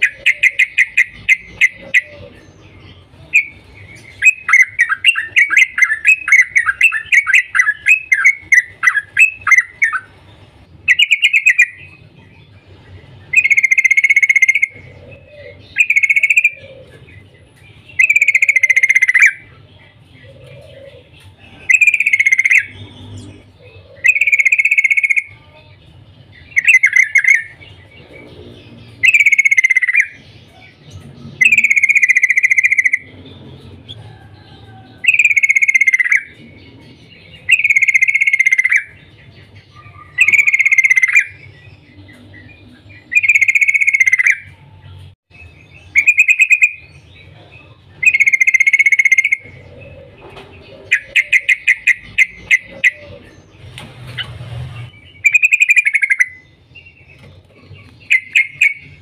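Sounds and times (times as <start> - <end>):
bird chattering call: 0.0 - 2.5, 13.3 - 17.1, 20.3 - 25.4, 26.5 - 34.2, 35.0 - 44.6, 45.8 - 47.4, 48.0 - 53.4, 55.2 - 59.0.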